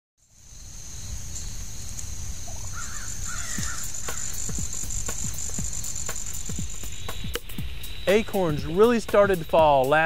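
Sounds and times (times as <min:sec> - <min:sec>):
high-pitched insect drone: 0:00.2 - 0:10.0
crow cawing: 0:02.6 - 0:04.8.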